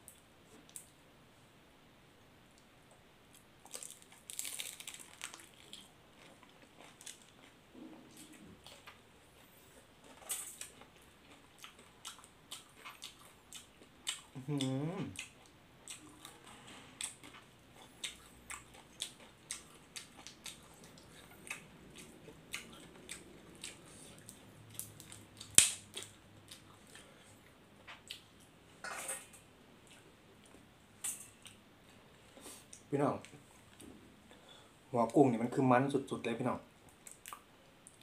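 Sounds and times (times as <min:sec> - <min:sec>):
chewing with mouth clicks: 0:10.0 - 0:16.4, 0:17.0 - 0:27.1, 0:36.9 - 0:38.0
short vocal sound: 0:14.4 - 0:15.2.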